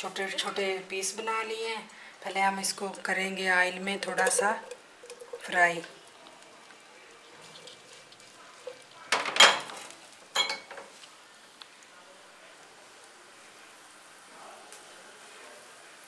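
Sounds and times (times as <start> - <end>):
chicken sizzling in a pan: 0.0 - 16.0
food frying in oil: 0.0 - 16.0
kitchenware clattering: 4.0 - 5.9, 7.4 - 11.0.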